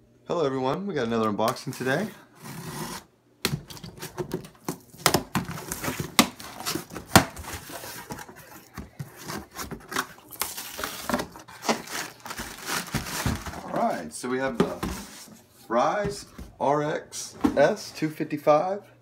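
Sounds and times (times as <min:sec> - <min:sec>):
cardboard rustling and tearing: 0:01.6 - 0:03.1, 0:03.8 - 0:14.0.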